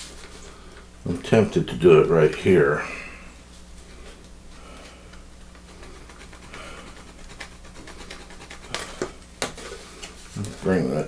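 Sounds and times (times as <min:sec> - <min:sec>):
low steady hum: 0:00.0 - 0:11.0
pencil scratching on metal sheet: 0:05.8 - 0:08.9.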